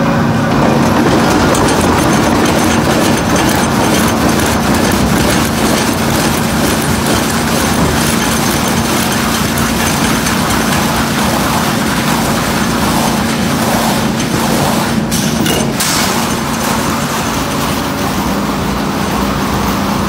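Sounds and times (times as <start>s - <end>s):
wood lathe running: 0.4s - 15.1s.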